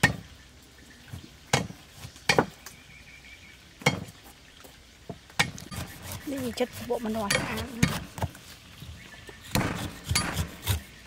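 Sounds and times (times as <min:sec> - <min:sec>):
knives chopping on wooden block: 0:05.4 - 0:08.4, 0:09.5 - 0:10.9.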